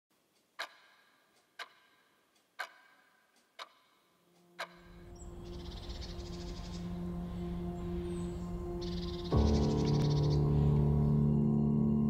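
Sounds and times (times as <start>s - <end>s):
low steady drone: 4.9s - 12.0s.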